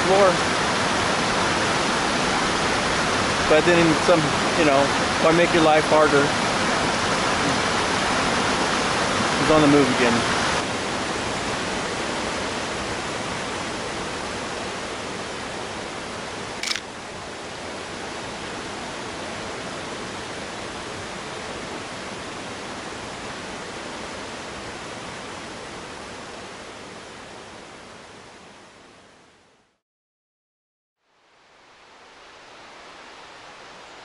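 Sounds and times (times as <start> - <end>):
creek water and waterfall rushing: 0.0 - 29.0, 31.2 - 34.0
camera shutter click: 16.6 - 16.9.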